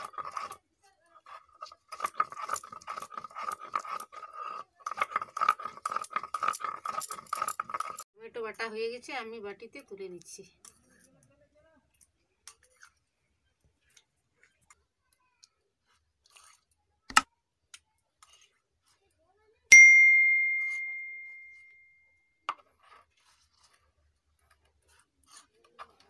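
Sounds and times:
bright ringing ding: 0:19.7 - 0:22.0.

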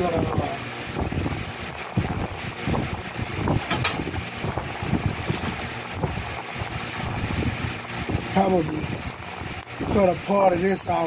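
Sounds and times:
sharp crinkle: 0:05.2 - 0:06.4.

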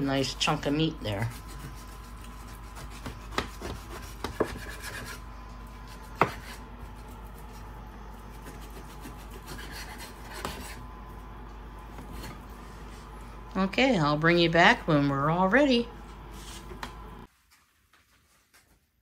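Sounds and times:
knife sawing through meat: 0:01.0 - 0:07.2, 0:08.2 - 0:10.8.

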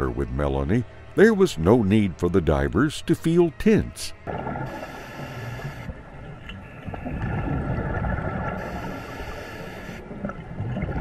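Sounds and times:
exhaled bubbles gushing: 0:06.8 - 0:08.8, 0:10.1 - 0:11.0
regulator hissing inhalation: 0:08.7 - 0:10.0.

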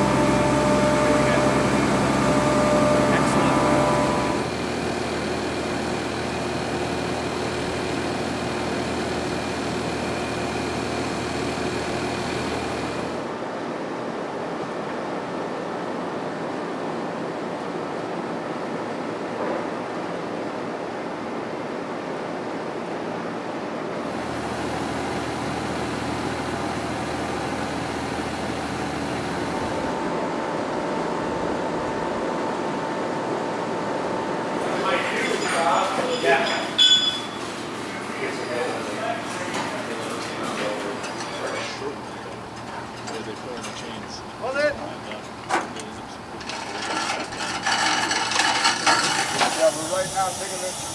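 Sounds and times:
steady higher tone: 0:00.0 - 0:04.6
low engine hum: 0:00.0 - 0:08.7
crane diesel engine running: 0:00.0 - 0:13.5, 0:24.0 - 0:50.9.

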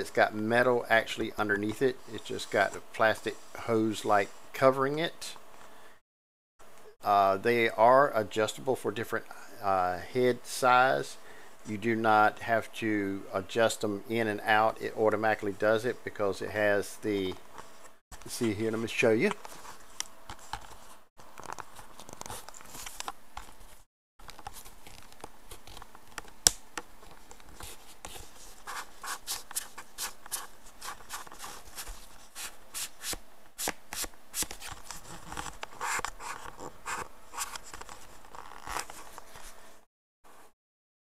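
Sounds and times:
plastic headset rubbing and scraping: 0:17.6 - 0:33.2, 0:34.0 - 0:39.8.

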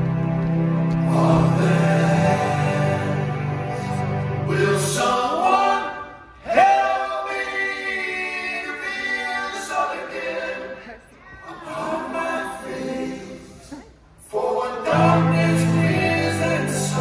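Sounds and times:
male vocal group singing in harmony: 0:01.0 - 0:17.0.

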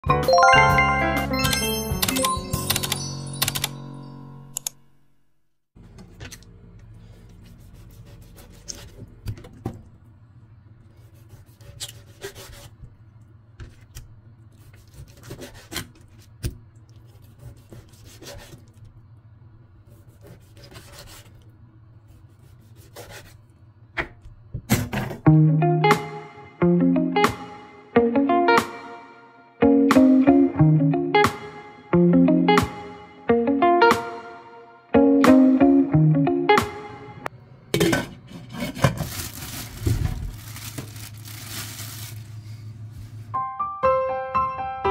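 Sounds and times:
chiming intro jingle: 0:00.1 - 0:04.6.

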